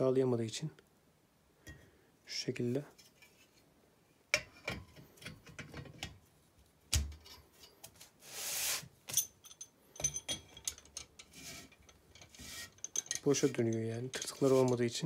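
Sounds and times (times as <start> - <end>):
metallic clicks and knocks: 4.4 - 6.2, 9.1 - 14.9
metal shaft clicking and rubbing: 9.5 - 15.0
metal rasping rub: 11.2 - 15.0.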